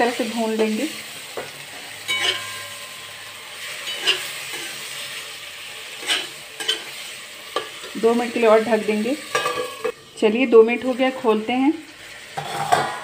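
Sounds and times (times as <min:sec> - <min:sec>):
faint frying sizzle: 0:00.0 - 0:13.0
spatula scraping a pan: 0:01.3 - 0:08.1, 0:12.1 - 0:13.0.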